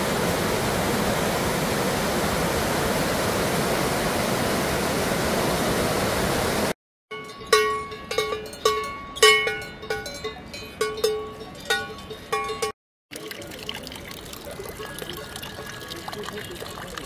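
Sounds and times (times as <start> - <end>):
cowbell clanking: 7.1 - 12.8, 14.6 - 16.6
water trickling into a trough: 13.1 - 17.0.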